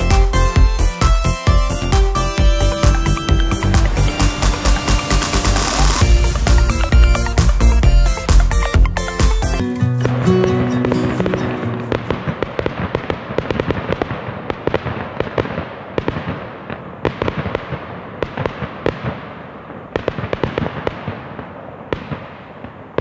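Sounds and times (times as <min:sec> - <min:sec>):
held musical chord: 0:00.0 - 0:12.6
fireworks crackling and popping: 0:02.5 - 0:23.0.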